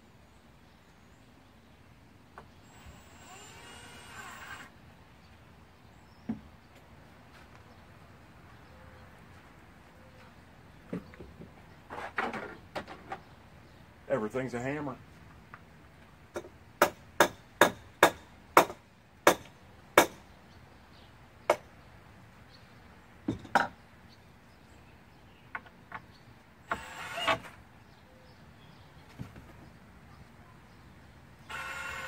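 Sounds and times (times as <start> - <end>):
cordless drill whirring: 2.6 - 4.7, 26.7 - 27.4, 31.5 - 32.0.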